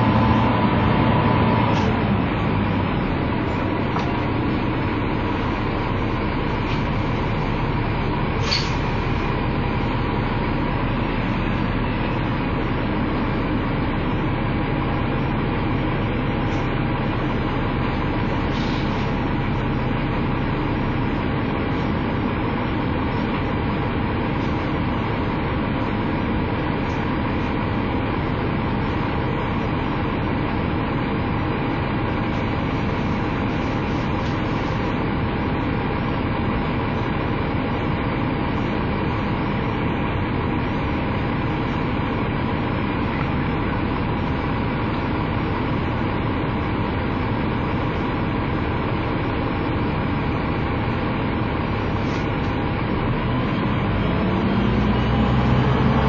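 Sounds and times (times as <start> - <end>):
diesel bus engine idling: 0.0 - 56.0.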